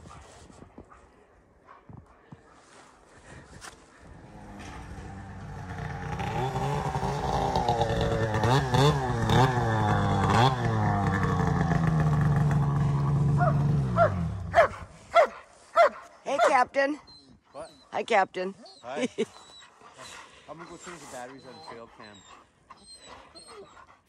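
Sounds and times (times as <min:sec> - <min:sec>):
snowmobile engine revving: 0:04.0 - 0:15.3, 0:20.0 - 0:23.6.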